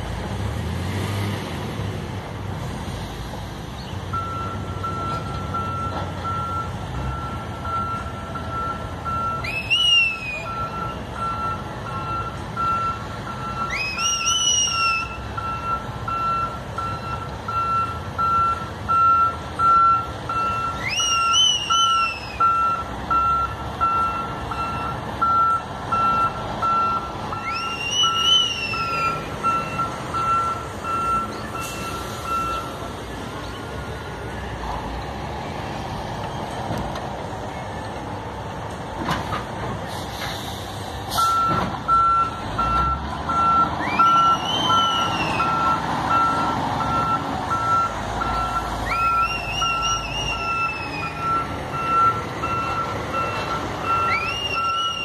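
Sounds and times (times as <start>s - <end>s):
diesel engine running: 0.0s - 55.0s
truck reversing beeper: 4.1s - 34.7s, 39.8s - 55.0s
high squeals: 13.6s - 15.4s, 20.4s - 22.7s, 27.3s - 32.8s, 48.3s - 55.0s.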